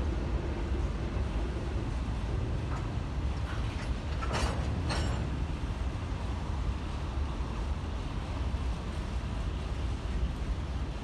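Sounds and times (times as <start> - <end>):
sharp metallic clanks: 3.8 - 5.4.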